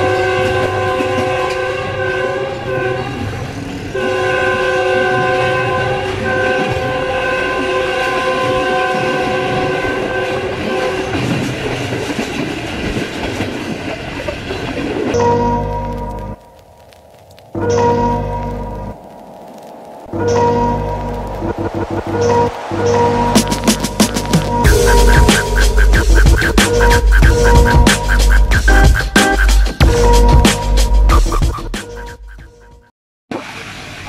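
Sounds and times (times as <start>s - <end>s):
train chime horn blasts: 0.0s - 11.2s, 15.2s - 16.3s, 29.9s - 30.4s
train wheels clattering over rails: 10.6s - 15.2s.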